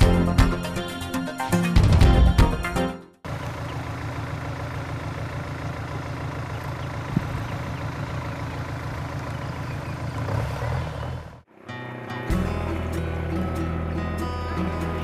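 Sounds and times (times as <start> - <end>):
boat engine droning: 3.2 - 15.0.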